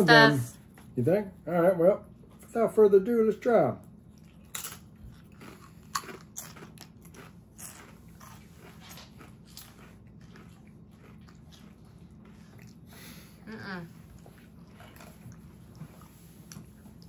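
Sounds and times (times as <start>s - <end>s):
tortilla chips crunching: 4.2s - 12.8s.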